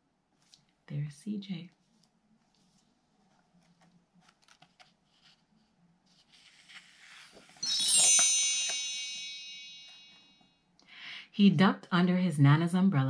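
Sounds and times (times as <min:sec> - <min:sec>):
book page rustling: 0:01.8 - 0:08.8
wind chime cascade: 0:07.5 - 0:10.4.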